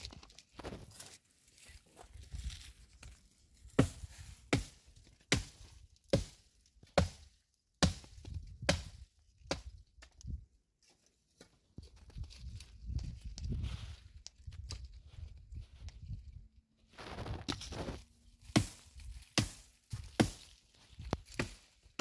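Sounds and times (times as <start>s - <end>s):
sharp chopping strikes: 3.7s - 6.4s, 7.0s - 9.7s, 18.4s - 20.6s, 21.2s - 22.0s.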